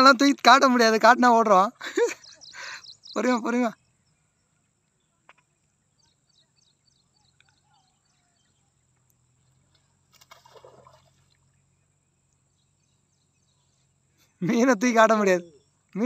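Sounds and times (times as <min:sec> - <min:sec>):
faint bird chirps: 0:01.7 - 0:16.0
water splash: 0:09.7 - 0:11.6.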